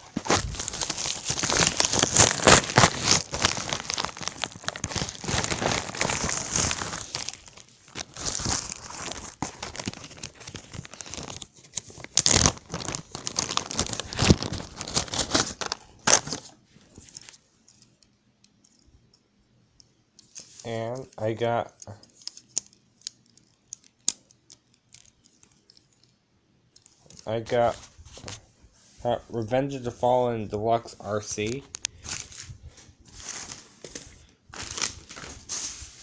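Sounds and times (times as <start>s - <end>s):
packaging crinkling and tearing: 0.0s - 17.9s, 21.7s - 26.1s, 31.4s - 36.0s.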